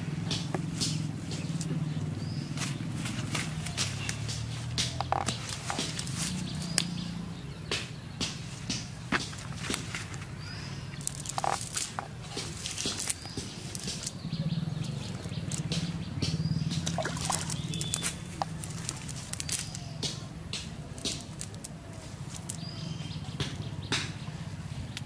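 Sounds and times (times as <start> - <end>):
low steady hum: 0.0 - 23.4
wet net being shaken: 11.0 - 14.2, 16.8 - 19.8
clicks taps and drips: 15.1 - 21.6.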